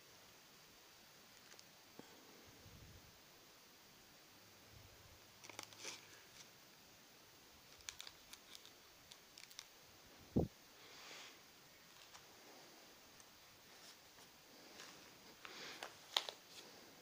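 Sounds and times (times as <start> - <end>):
plastic blister pack crinkling: 5.4 - 6.5, 7.6 - 9.8, 11.8 - 12.3, 13.2 - 16.8
soft rustle: 7.7 - 17.0.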